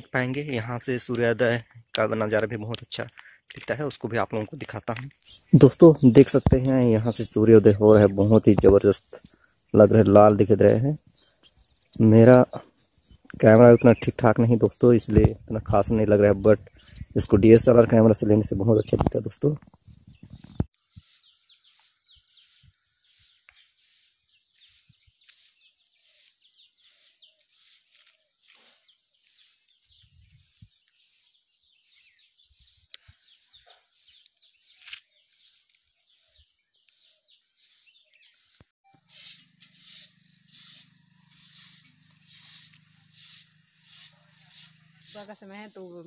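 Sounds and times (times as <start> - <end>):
birds chirping: 0.0 - 46.0
broom sweeping dirt: 20.7 - 45.4.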